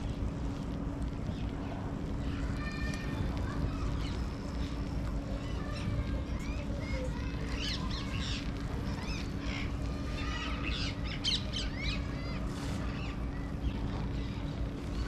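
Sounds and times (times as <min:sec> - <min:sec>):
steady low rumble: 0:00.0 - 0:15.0
birds chirping: 0:03.7 - 0:15.0.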